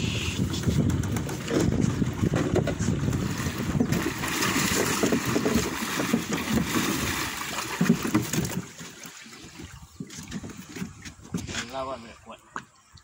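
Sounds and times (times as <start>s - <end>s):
wind rumbling on microphone: 0.0s - 8.8s
fish thrashing and splashing water: 0.1s - 11.5s.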